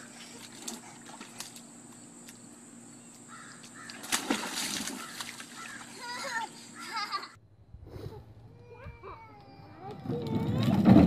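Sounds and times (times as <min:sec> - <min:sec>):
splash in kiddie pool: 0:00.0 - 0:02.4, 0:03.6 - 0:07.2.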